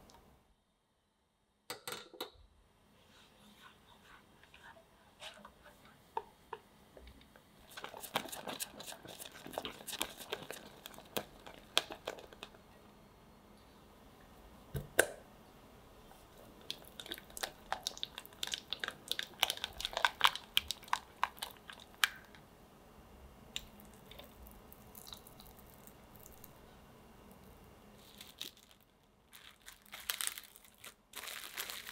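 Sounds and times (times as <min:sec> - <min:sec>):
spatula stirring sticky cream: 0:07.6 - 0:12.6.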